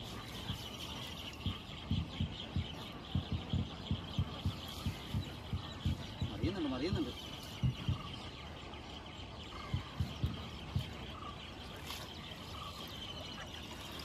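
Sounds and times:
dull low thumps: 1.4s - 11.6s.

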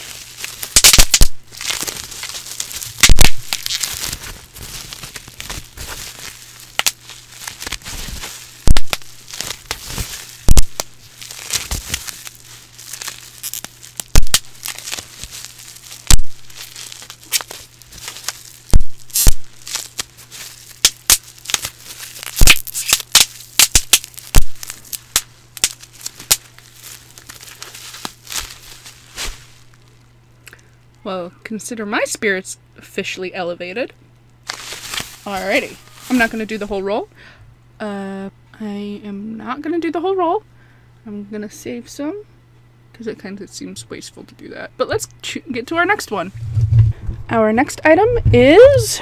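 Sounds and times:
bubble wrap popping: 0.0s - 30.1s, 34.4s - 36.8s
plastic sheet crinkling: 0.0s - 30.1s, 34.4s - 36.8s.

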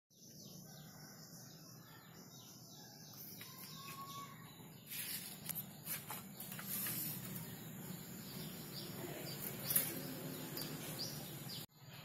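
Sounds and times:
birds chirping: 0.1s - 12.0s
rustling noise: 4.8s - 7.6s.

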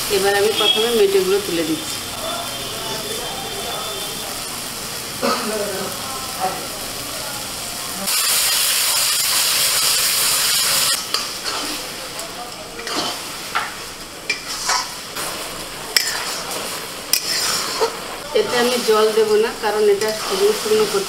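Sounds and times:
liver sizzling in hot oil: 0.0s - 21.0s
spatula scraping metal pan: 14.3s - 18.8s, 19.9s - 21.0s.

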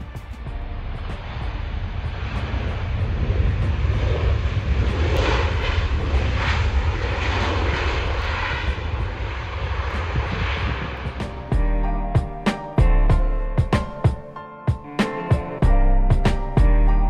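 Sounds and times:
jet engines running: 0.0s - 15.7s.

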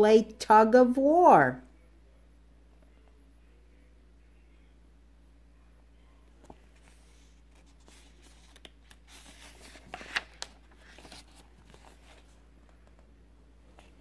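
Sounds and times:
book page turning: 6.4s - 13.1s.

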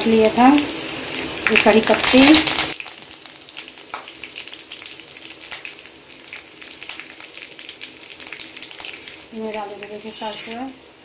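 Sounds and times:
leaves frying in hot oil: 0.0s - 11.0s
small pops and crackles: 2.4s - 7.2s.

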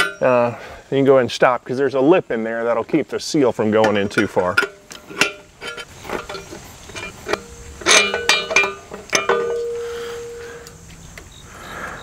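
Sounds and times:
steel tools clinking on metal: 0.0s - 0.4s, 3.9s - 10.5s
metallic ringing tone: 0.0s - 0.5s, 4.6s - 10.6s.

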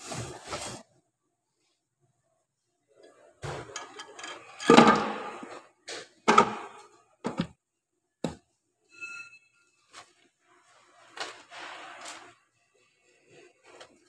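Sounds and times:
metal knocks and clunks: 6.3s - 7.6s.

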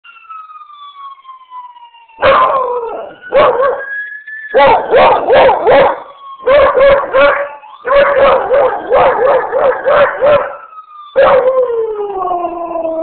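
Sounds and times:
ambulance siren wailing: 0.0s - 13.0s
dog howling: 2.2s - 3.9s, 4.6s - 10.6s, 11.2s - 13.0s.

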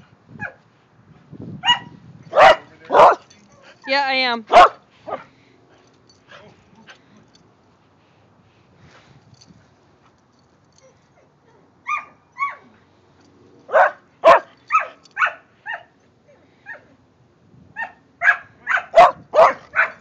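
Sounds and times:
dog barking: 1.6s - 3.2s, 4.5s - 5.3s, 13.7s - 15.9s, 17.8s - 20.0s.

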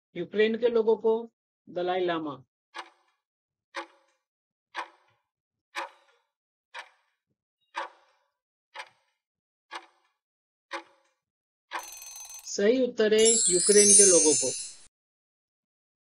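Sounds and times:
clock ticking: 5.8s - 6.0s, 11.7s - 12.6s.

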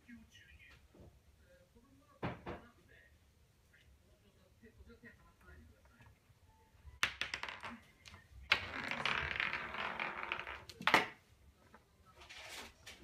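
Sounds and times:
toy ball clattering on wooden floor: 7.0s - 11.2s.

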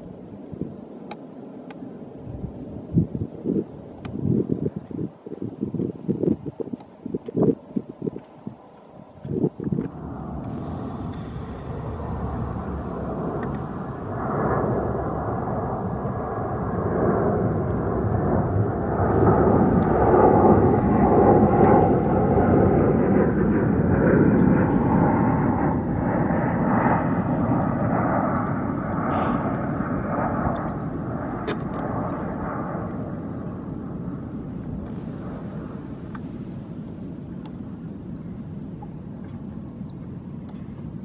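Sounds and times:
jet airliner roar: 6.0s - 41.0s
faint jet whine: 8.4s - 40.8s.

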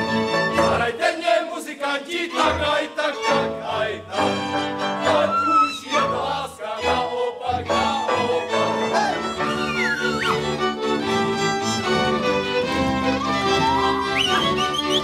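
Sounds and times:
folk band with cimbalom and fiddles: 0.0s - 0.9s, 2.3s - 15.0s
group singing: 0.5s - 9.6s.

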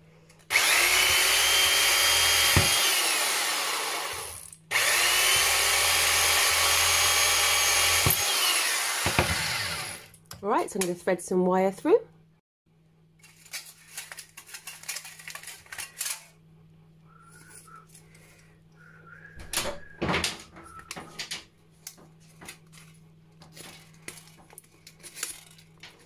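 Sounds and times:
thin aluminium crinkling and clicking: 13.2s - 16.4s, 20.2s - 26.0s.

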